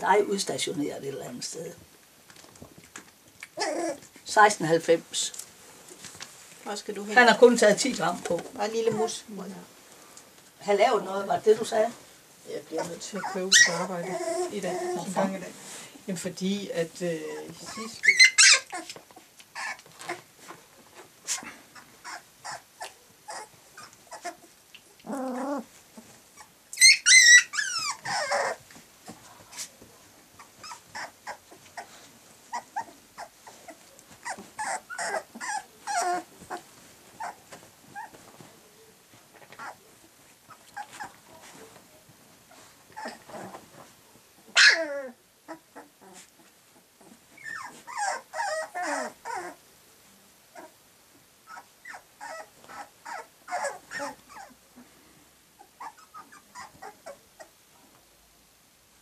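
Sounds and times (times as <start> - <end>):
puppies growling and whimpering: 3.4 - 4.2, 12.7 - 15.4, 17.4 - 20.3, 21.0 - 28.7, 30.4 - 38.4, 40.5 - 41.2, 42.6 - 43.8, 44.5 - 49.6, 51.4 - 54.6, 55.6 - 57.6
puppy yelp: 3.6 - 4.1, 12.8 - 15.0, 17.7 - 19.0, 19.6 - 20.2, 22.0 - 24.5, 26.4 - 28.6, 30.4 - 31.9, 32.5 - 36.6, 37.2 - 38.2, 39.6 - 39.8, 44.5 - 46.2, 47.4 - 49.6, 51.4 - 54.6, 55.6 - 57.5
puppy high squeal: 18.0 - 18.9, 26.8 - 28.6, 44.6 - 45.2.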